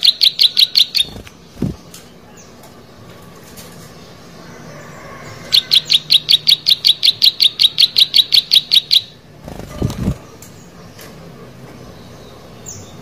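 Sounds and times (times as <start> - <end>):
bird chirping rapidly: 0.0 - 2.0, 5.5 - 10.4.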